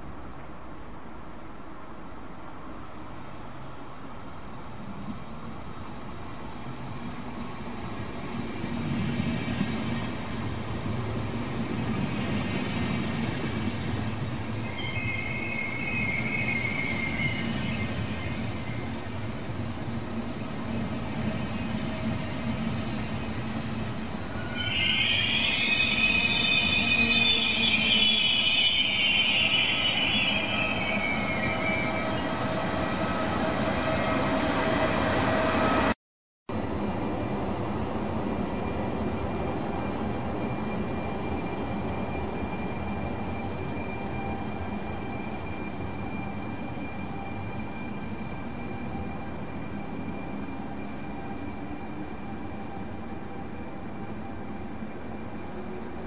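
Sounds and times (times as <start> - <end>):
train rumbling on track: 0.0 - 56.0
train wheel squeal: 8.4 - 35.9, 37.6 - 56.0
high-pitched wheel squeal: 14.5 - 19.6, 21.8 - 35.8.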